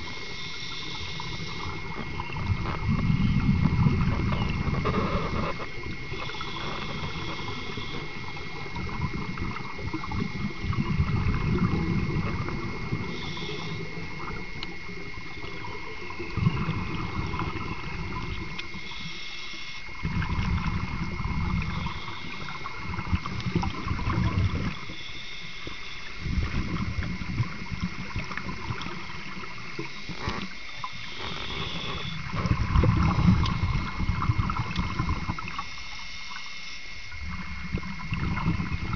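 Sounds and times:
regulator hissing inhalations: 0:00.0 - 0:02.0, 0:04.9 - 0:08.7, 0:13.0 - 0:14.3, 0:18.7 - 0:19.9, 0:24.8 - 0:26.2, 0:29.8 - 0:32.3
exhaled bubbles rumbling: 0:00.0 - 0:19.2, 0:19.8 - 0:35.8, 0:36.4 - 0:38.9.

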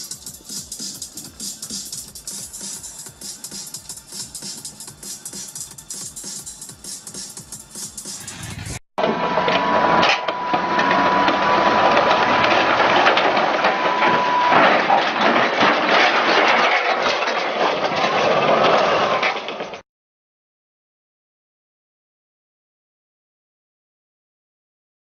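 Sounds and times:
metal scraping and crunching: 0:08.2 - 0:19.8
steel tracks clattering and grinding: 0:10.0 - 0:19.8.

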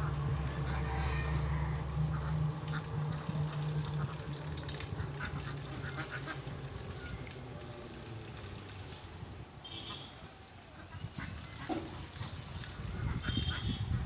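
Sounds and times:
low steady hum: 0:00.0 - 0:10.7
ducks quacking: 0:02.0 - 0:04.3, 0:04.9 - 0:06.5, 0:09.7 - 0:14.0.

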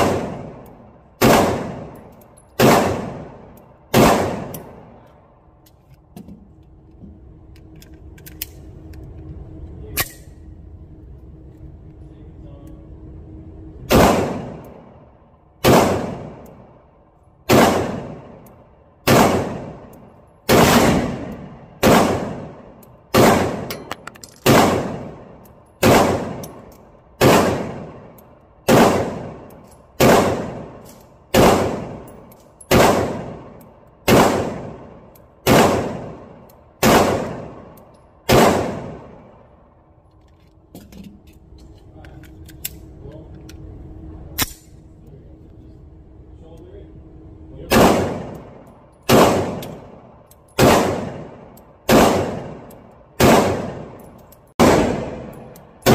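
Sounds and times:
pistol shots echoing indoors: 0:00.0 - 0:05.6, 0:13.8 - 0:16.8, 0:17.4 - 0:39.6, 0:47.7 - 0:55.9.

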